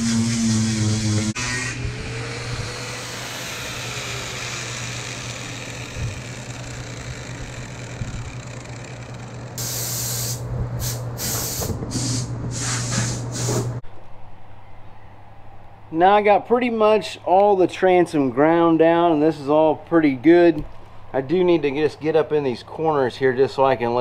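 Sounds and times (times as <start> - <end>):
angle grinder sanding fibreglass: 0.0 - 9.7
loud hissing blasts: 9.6 - 13.8.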